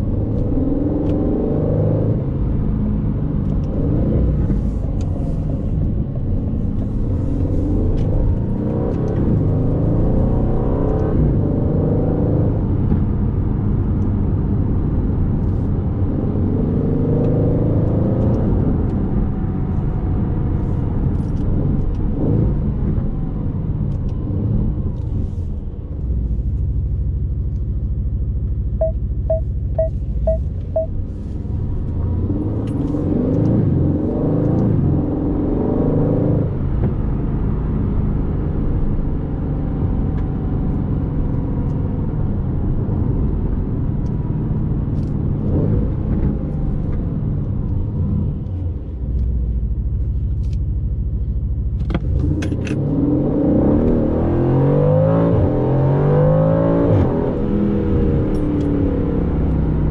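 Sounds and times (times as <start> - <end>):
car engine revving: 52.0 - 59.9.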